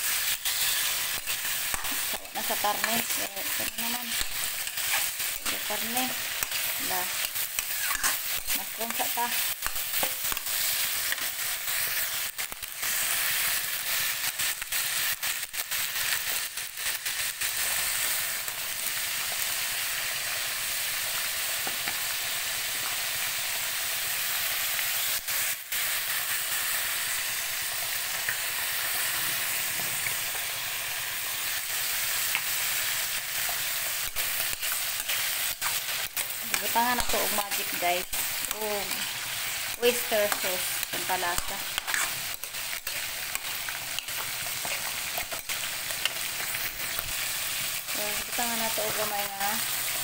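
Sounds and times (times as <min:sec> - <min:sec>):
vegetables sizzling in a wok: 0:00.0 - 0:50.0
metal spatula stirring: 0:00.4 - 0:09.0, 0:33.3 - 0:47.0.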